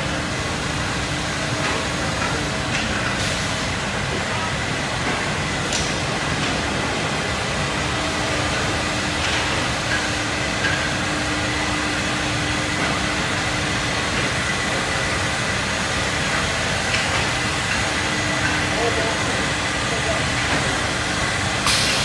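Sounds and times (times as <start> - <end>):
woodworking machinery running: 0.0 - 22.0.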